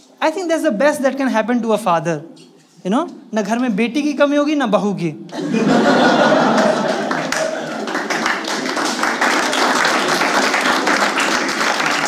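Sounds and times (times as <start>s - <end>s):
audience laughing: 5.3s - 8.7s
audience applause: 5.9s - 12.0s.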